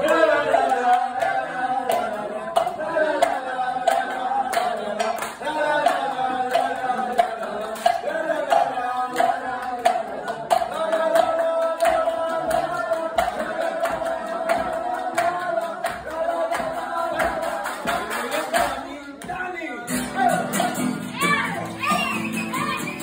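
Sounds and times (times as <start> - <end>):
women singing together: 0.0 - 19.4
hand clapping: 0.0 - 21.6
acoustic guitar: 0.0 - 23.0.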